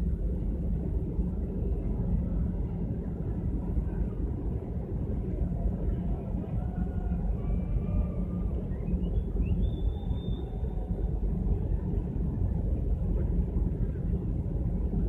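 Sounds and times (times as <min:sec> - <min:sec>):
ship engine low rumble: 0:00.0 - 0:15.0
wind buffeting microphone: 0:00.0 - 0:15.0.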